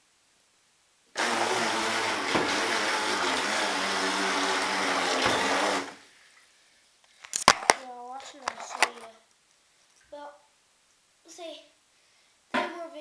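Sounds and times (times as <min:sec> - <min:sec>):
electric boat motor whine: 0:01.2 - 0:06.0.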